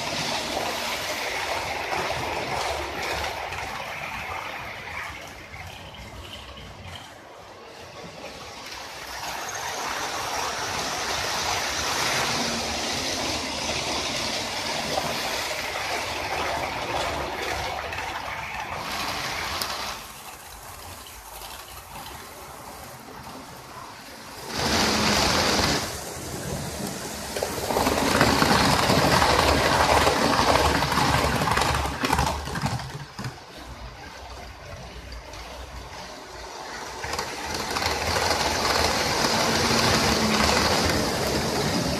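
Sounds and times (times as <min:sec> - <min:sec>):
wheels rattling over rails: 0:00.0 - 0:41.9
model train motor whirr: 0:08.6 - 0:22.8, 0:24.3 - 0:33.3, 0:34.0 - 0:41.9.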